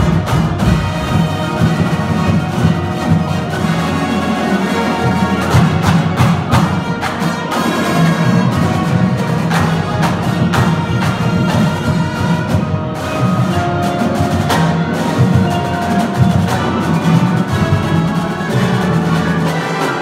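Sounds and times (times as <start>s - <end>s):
brass holding chords: 0.0s - 20.0s
snare and bass drums: 0.0s - 20.0s.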